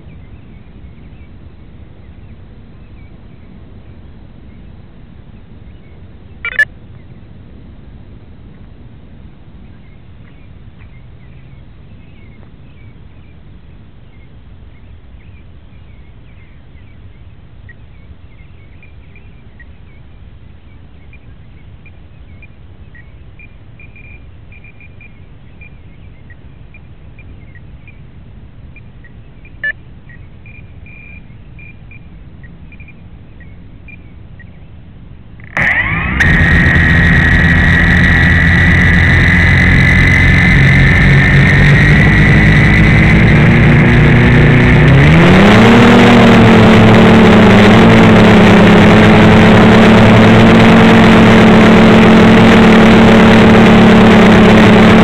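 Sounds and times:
faint chirps: 4.4s - 7.3s, 14.0s - 28.1s, 28.7s - 34.8s
drone motors whining: 35.4s - 55.0s.

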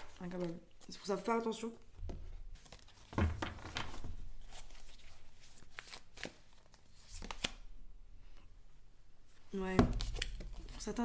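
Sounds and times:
cards being shuffled: 2.6s - 7.7s, 9.9s - 11.0s.

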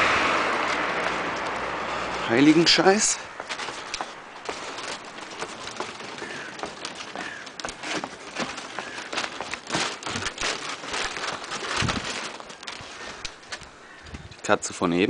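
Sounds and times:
footsteps on pebbles and dry leaves: 0.6s - 13.8s.

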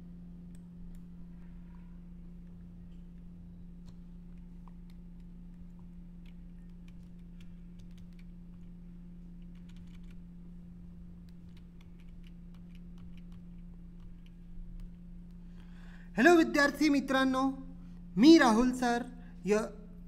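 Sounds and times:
low electrical hum: 0.0s - 20.0s
keyboard keys clicking: 2.4s - 8.8s, 9.4s - 10.2s, 11.2s - 15.4s.

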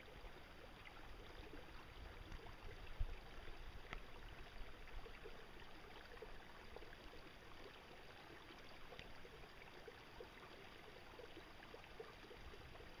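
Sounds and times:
soft ticks: 3.8s - 4.1s, 8.9s - 9.2s.

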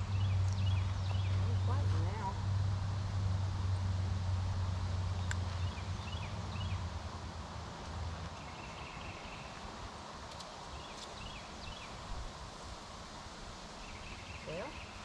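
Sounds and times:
small birds chirping: 0.0s - 2.4s, 5.1s - 6.9s, 8.2s - 12.1s, 13.8s - 15.0s
faint clicks: 10.2s - 11.2s.

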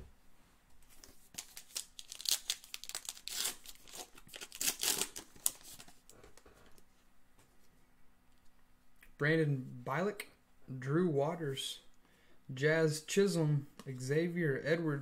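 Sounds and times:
wrapper crinkling and tearing: 1.3s - 6.1s.

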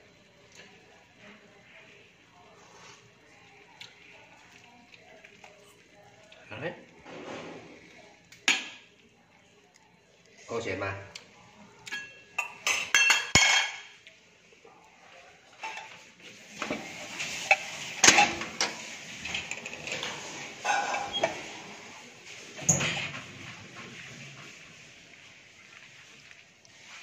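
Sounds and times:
metal spatula and cookware clinking: 11.9s - 14.0s, 15.6s - 16.0s, 17.3s - 21.9s.

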